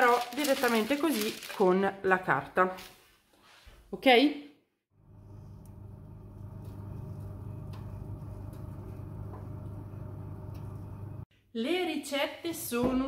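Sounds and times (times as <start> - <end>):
oven fan humming: 5.0 - 11.2.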